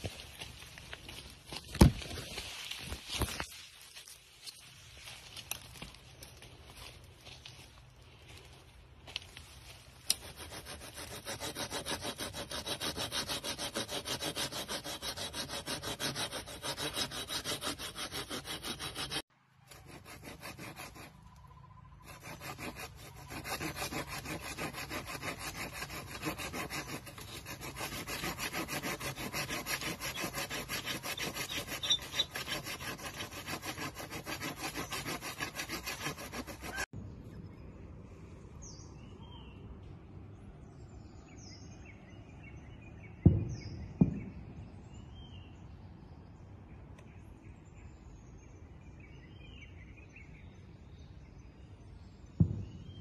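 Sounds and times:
outdoor background sound: 0.0s - 53.0s
hand saw cutting wooden log: 10.1s - 21.2s, 22.0s - 36.9s.

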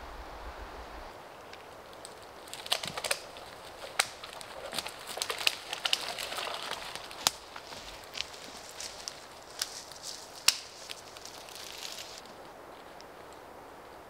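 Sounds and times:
wind rumble on microphone: 0.0s - 1.2s
dead wood cracking: 1.5s - 13.4s
bracken crunching underfoot: 1.6s - 13.2s.

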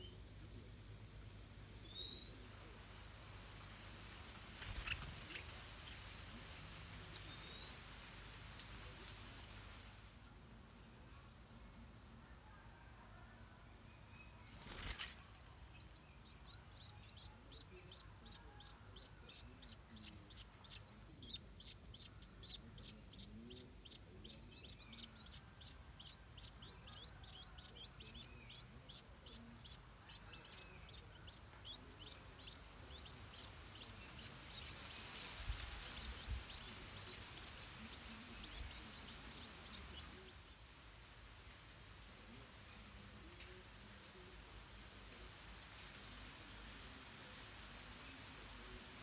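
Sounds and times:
nestlings begging chirps: 14.5s - 40.5s.

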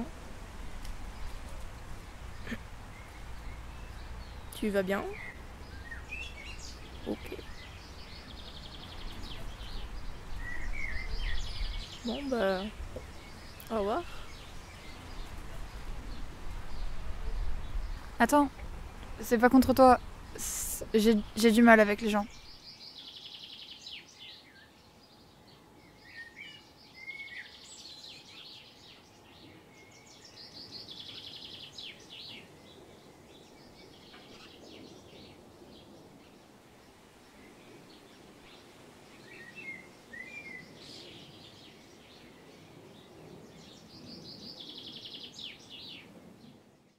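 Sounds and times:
songbirds trilling: 0.0s - 46.6s
outdoor background hiss: 0.0s - 46.9s
bird chirps: 2.3s - 18.1s.

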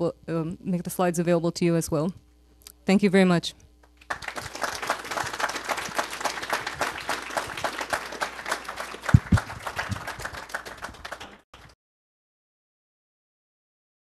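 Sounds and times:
audience applauding: 4.0s - 11.8s.

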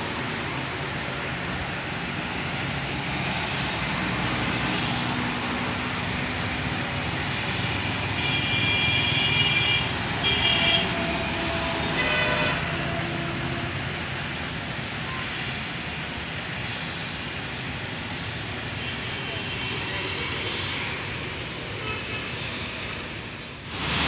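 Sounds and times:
road traffic passing: 0.0s - 24.0s
vehicle horn honking: 11.9s - 12.7s.

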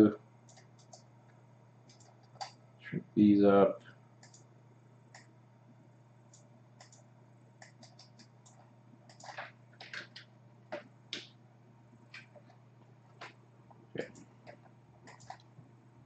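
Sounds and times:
low electrical hum: 0.0s - 16.0s
computer mouse clicks: 0.5s - 1.1s, 1.8s - 2.6s, 4.2s - 4.5s, 5.1s - 5.3s, 6.3s - 11.4s, 12.1s - 13.4s, 14.0s - 15.5s.

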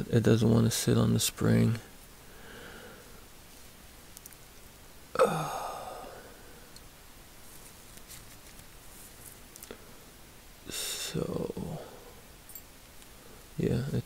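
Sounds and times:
light clicks of small steel parts: 4.1s - 4.7s, 6.7s - 6.9s, 7.6s - 9.8s, 12.5s - 13.2s
person sighing: 5.1s - 6.7s.

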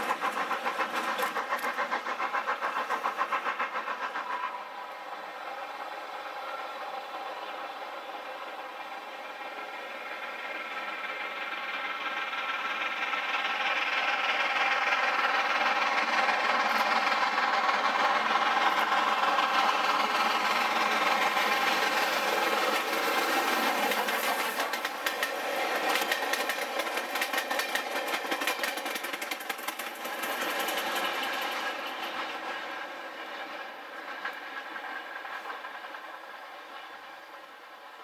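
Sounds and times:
wheels clattering over rail joints: 0.0s - 4.6s, 12.5s - 37.6s
steam locomotive exhaust: 0.0s - 38.0s.

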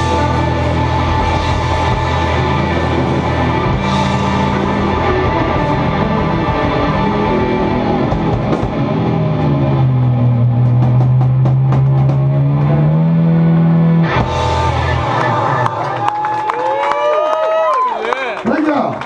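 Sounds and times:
blues-rock band playing: 0.0s - 17.0s
rapid drum and cymbal hits: 10.3s - 13.0s.

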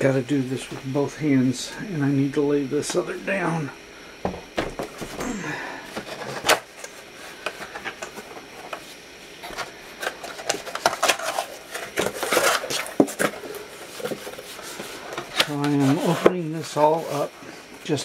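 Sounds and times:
cardboard rubbing and scraping: 10.9s - 17.3s.

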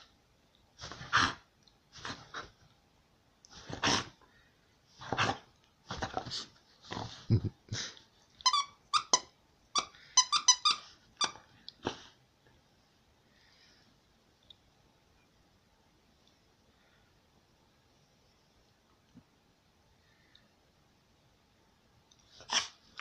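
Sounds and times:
dog puffing while chewing: 3.5s - 4.2s, 5.0s - 8.0s
squeaky toy squeaks: 8.4s - 11.4s.

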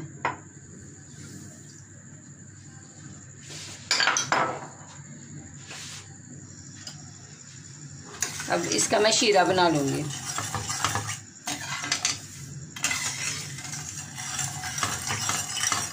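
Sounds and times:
kitchenware clattering: 3.9s - 4.8s, 8.2s - 12.2s, 12.8s - 15.9s.

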